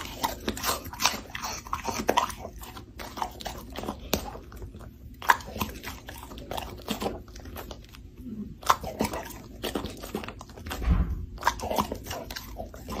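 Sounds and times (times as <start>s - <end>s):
dog chewing with wet crunches: 0.0s - 13.0s
low thump: 10.8s - 11.4s.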